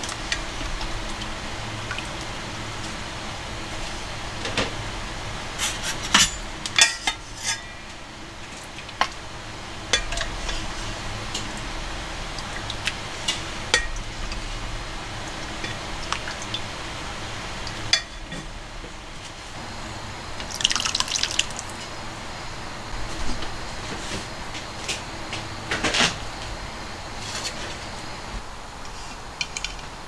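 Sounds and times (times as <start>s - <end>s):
low hum: 0.0s - 29.8s
utensils clinking on metal pot: 6.1s - 7.9s, 9.9s - 10.7s.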